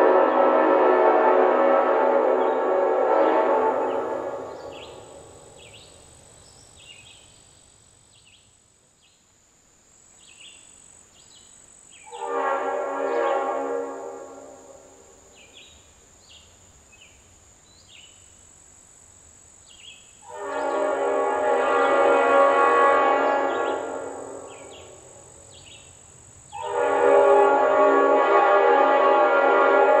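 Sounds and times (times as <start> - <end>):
train horn chords: 0.0 - 5.4, 12.0 - 15.5, 20.2 - 25.3, 26.5 - 30.0
high chirps of birds or insects: 0.0 - 30.0.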